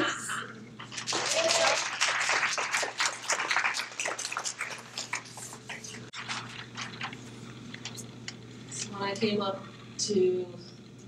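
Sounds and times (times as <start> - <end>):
steady low hum: 0.0 - 11.0
audience applause: 0.8 - 7.0.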